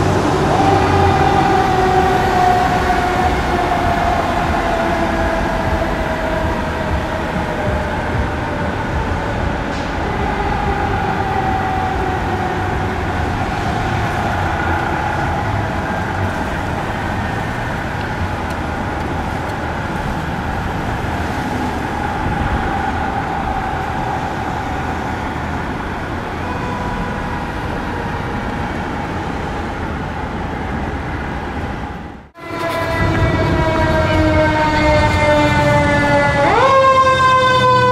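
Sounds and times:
diesel engines rumbling: 0.0 - 37.9
sirens wailing: 0.0 - 37.9
street traffic: 0.0 - 37.9
truck horns: 32.4 - 37.9.

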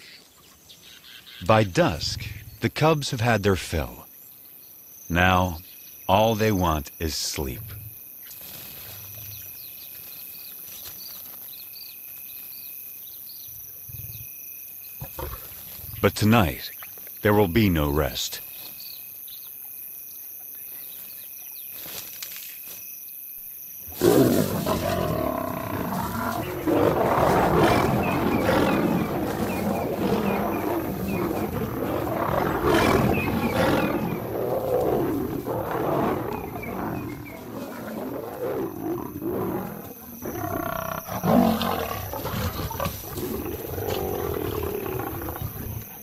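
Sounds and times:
insects trilling: 0.0 - 46.0
lions growling and snarling: 15.0 - 16.0, 23.9 - 46.0.

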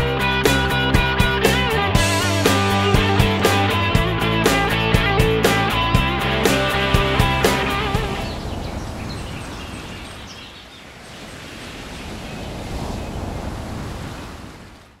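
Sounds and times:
water rushing: 0.0 - 15.0
wind rushing: 4.6 - 14.7.

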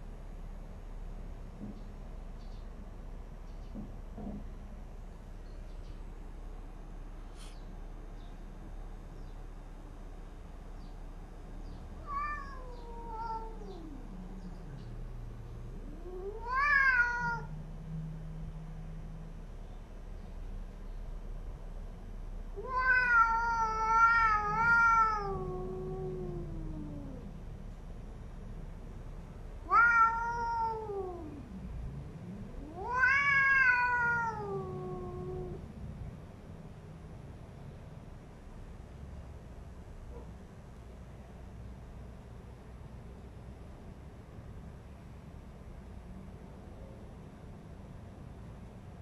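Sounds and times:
cat yowling: 12.0 - 14.1, 15.8 - 17.6, 22.6 - 27.3, 29.6 - 31.5, 32.6 - 35.7
cat growling low: 12.1 - 15.0, 15.6 - 18.3, 22.7 - 27.5, 29.6 - 35.8.

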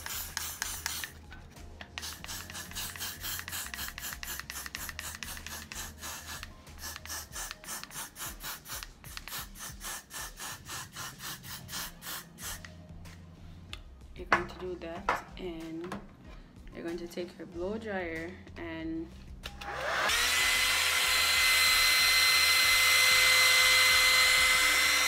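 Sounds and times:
aerosol spray hissing in bursts: 0.0 - 1.1, 2.0 - 12.7.

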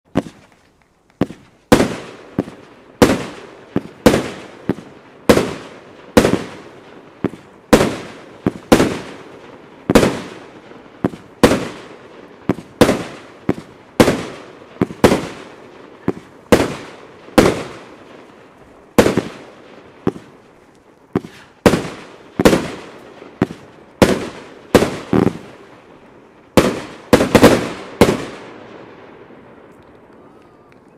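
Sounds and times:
fireworks bangs: 0.1 - 30.9.

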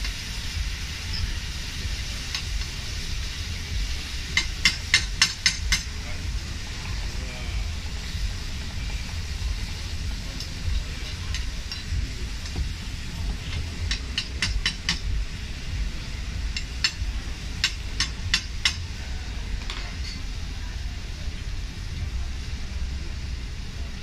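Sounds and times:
low rumble: 5.0 - 24.0.

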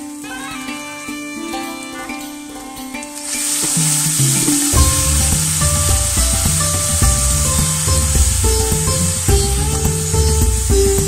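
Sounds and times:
background music with beat and bass: 0.3 - 11.0
faint sizzle of onions frying: 3.2 - 11.0.

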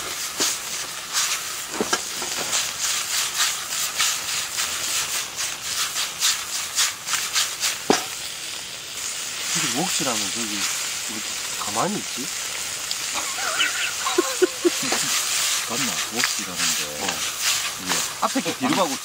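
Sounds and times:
sharp pop of frying: 0.0 - 8.3
food sizzling in a pan: 0.0 - 19.0.

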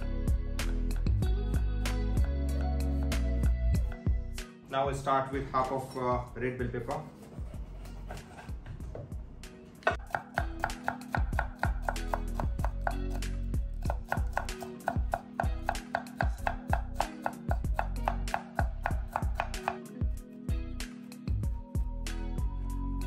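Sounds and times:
knife tapping on wooden board: 9.9 - 13.2, 13.8 - 19.9.

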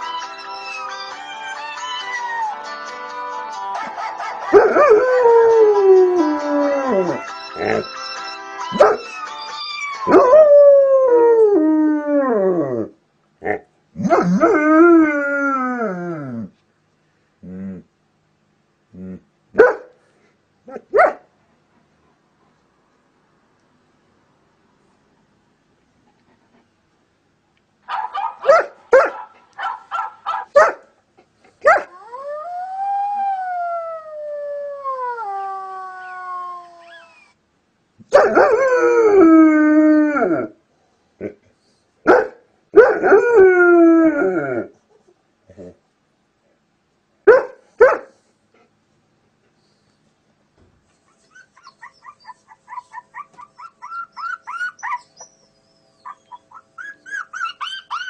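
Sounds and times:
dog yelp: 7.6 - 9.2, 27.9 - 30.8, 51.3 - 58.0.

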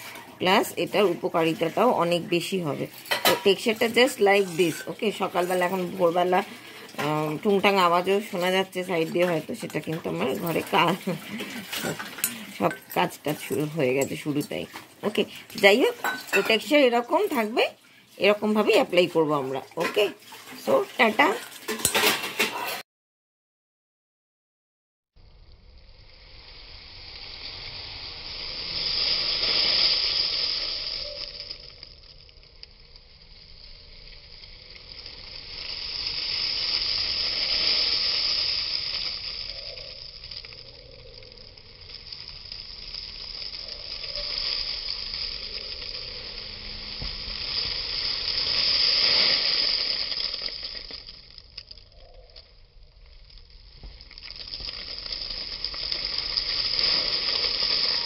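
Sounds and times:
dried leaves rustling onto cloth: 0.0 - 17.6, 29.2 - 32.2, 33.6 - 58.0.

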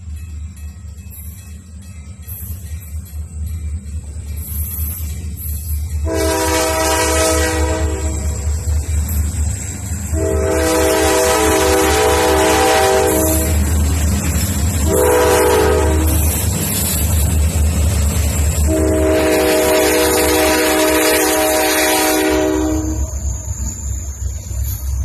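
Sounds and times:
locomotive engine rumble: 0.0 - 25.0
locomotive air horn blasts: 6.0 - 8.5, 10.1 - 13.6, 14.8 - 16.3, 18.6 - 23.2.

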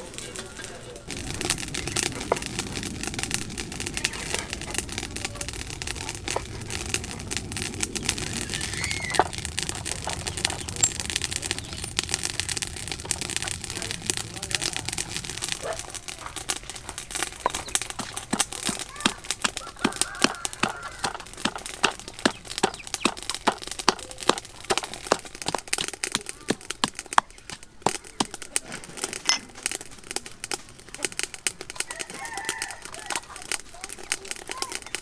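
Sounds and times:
wooden pestle pounding in mortar: 17.4 - 28.4.

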